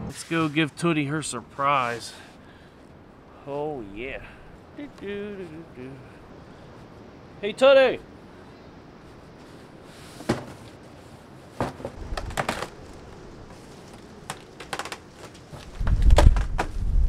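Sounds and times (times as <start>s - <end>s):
wind rumbling on microphone: 10.8s - 17.0s
cardboard crackling: 11.6s - 16.8s.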